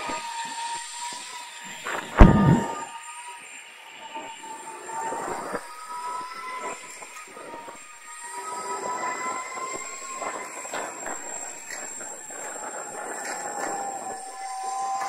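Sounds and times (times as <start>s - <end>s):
electric skateboard motor whine: 0.0s - 15.0s
sharp knocks: 2.0s - 2.8s.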